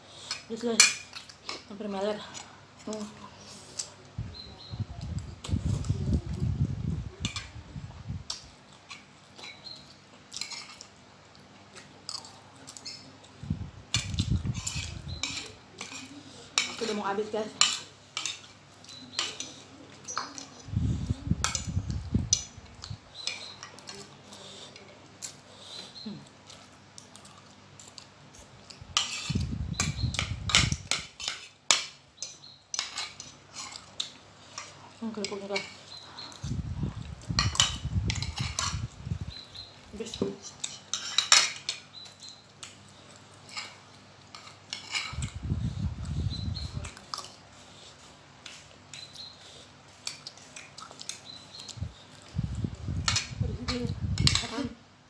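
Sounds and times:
chewing: 22.6 - 29.4, 32.2 - 39.0, 39.6 - 53.3
cutlery clinking on plate: 40.6 - 41.8.

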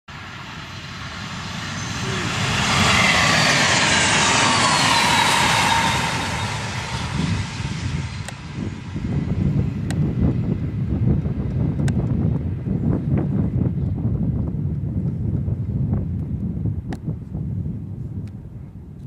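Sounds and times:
train passing rush: 0.1 - 9.8
train whine dropping in pitch: 1.7 - 7.4.

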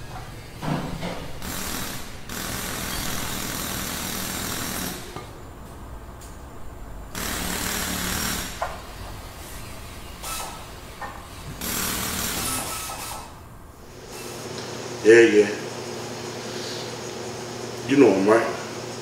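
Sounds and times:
harsh rattling machine noise: 0.0 - 5.3, 7.1 - 16.0.

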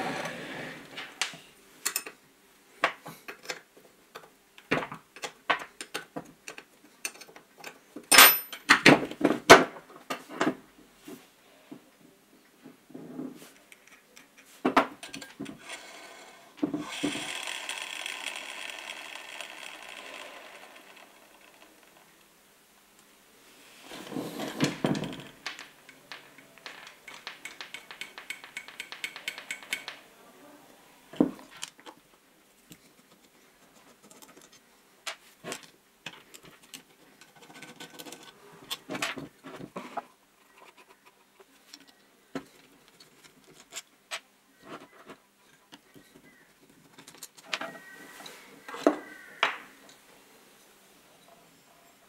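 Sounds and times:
metal parts clinking and knocking: 5.2 - 8.8, 16.8 - 22.1, 24.4 - 30.0.

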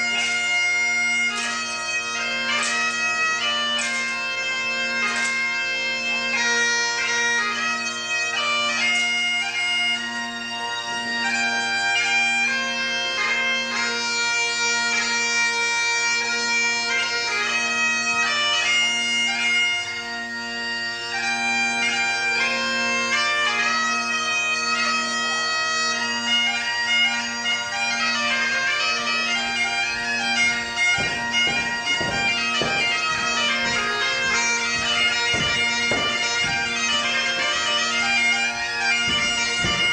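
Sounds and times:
bagpipe dance tune: 0.0 - 39.9
feet thudding on wooden floor: 29.9 - 39.9.

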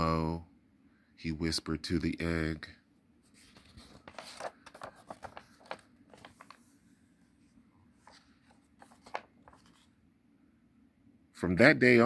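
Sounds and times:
paper rustling: 3.2 - 10.0
book page flicking: 8.8 - 9.8.

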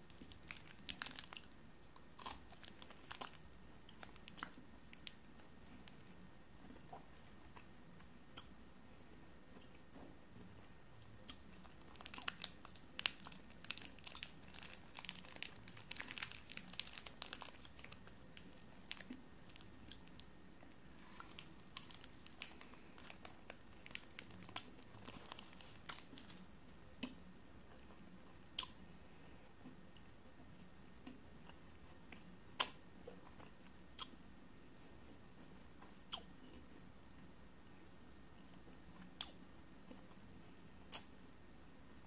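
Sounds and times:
foil wrapper crinkling: 0.1 - 1.6, 2.4 - 3.4, 11.6 - 20.2, 21.0 - 26.4.

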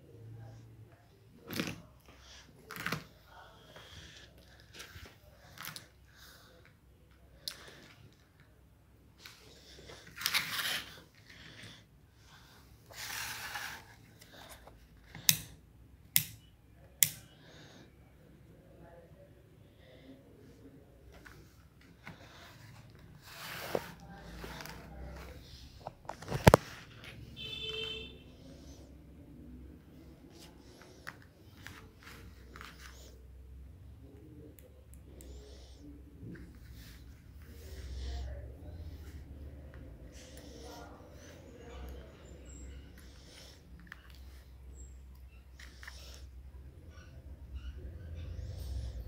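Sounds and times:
handling rustling scrapes: 9.2 - 11.8, 12.5 - 14.8, 21.1 - 27.4.

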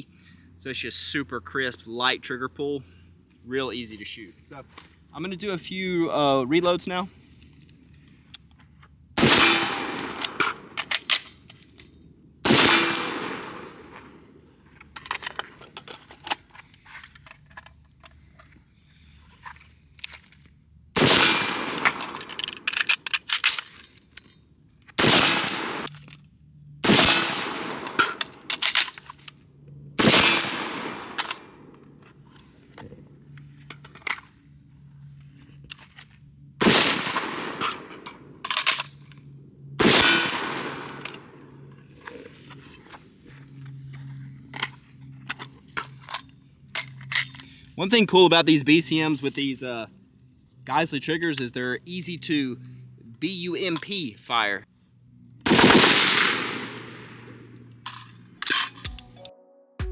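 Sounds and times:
rifle shots echoing: 9.2 - 11.2, 12.4 - 14.3, 21.0 - 22.8, 25.0 - 25.9, 26.8 - 28.8, 30.0 - 31.7, 36.6 - 38.0, 39.8 - 41.3, 55.4 - 57.4
reloading clicks and rattles: 10.1 - 11.9, 14.7 - 18.6, 21.2 - 26.3, 27.8 - 29.4, 31.2 - 31.5, 37.6 - 39.3.

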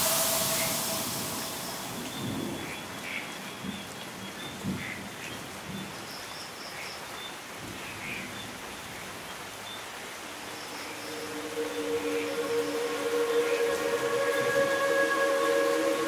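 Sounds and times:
steady low tone: 0.0 - 3.2, 10.0 - 16.0
rain hissing: 0.0 - 16.0
faint high chirps: 10.2 - 16.0.

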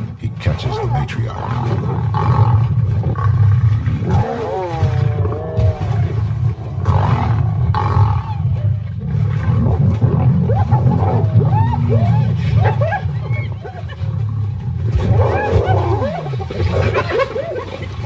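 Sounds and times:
lions growling: 0.0 - 18.0
lions snarling roars: 0.6 - 18.0
wavering high cries: 10.5 - 17.8.

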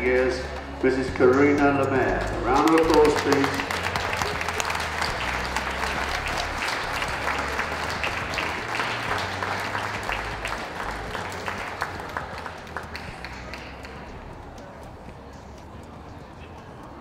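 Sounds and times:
audience applauding: 0.6 - 14.2.

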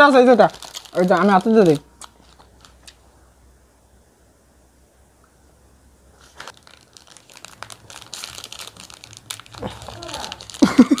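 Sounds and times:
wrapper crinkling and tearing: 0.0 - 3.0, 6.2 - 11.0.

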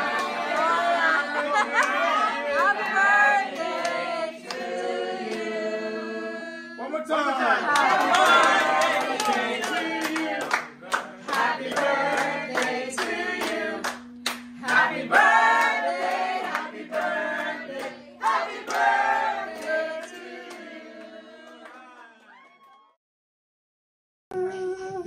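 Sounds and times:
group of people singing: 0.0 - 7.0, 7.6 - 22.0
hand claps: 1.8 - 5.5, 7.7 - 20.6.

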